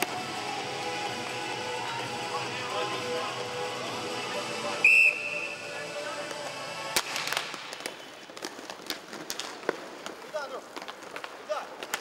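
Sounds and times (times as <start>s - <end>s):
background music: 0.0s - 7.8s
sharp high whistle blast: 4.8s - 5.7s
hockey sticks and puck clacking: 6.1s - 12.0s.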